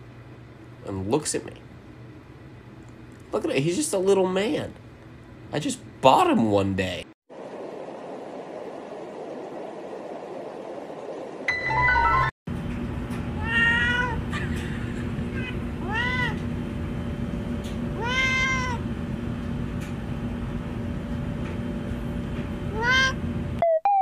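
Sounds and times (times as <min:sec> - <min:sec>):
steady low hum: 0:00.0 - 0:11.5, 0:12.5 - 0:23.6
cat meowing: 0:13.4 - 0:14.5, 0:15.3 - 0:16.4, 0:18.0 - 0:18.8, 0:22.7 - 0:23.2.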